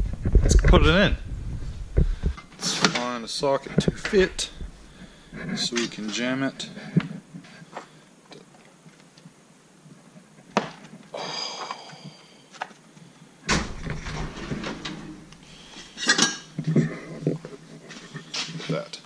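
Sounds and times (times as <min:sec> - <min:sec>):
drawer sliding open: 0:13.5 - 0:15.3.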